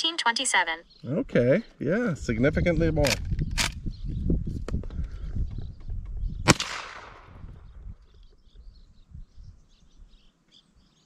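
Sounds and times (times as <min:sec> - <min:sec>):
rifle gunshot echoing: 0:06.4 - 0:07.6.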